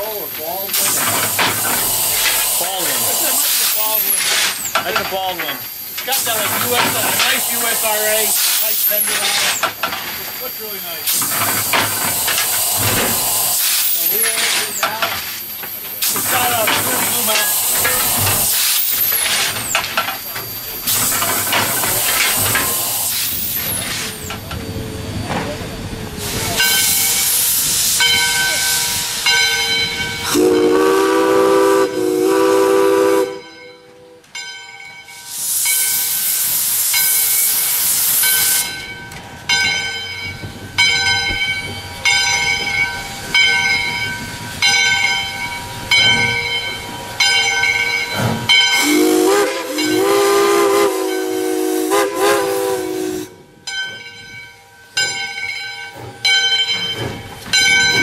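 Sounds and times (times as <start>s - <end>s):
steam hissing: 0.0s - 34.0s, 35.1s - 53.6s
steam locomotive chime whistle: 26.6s - 58.0s.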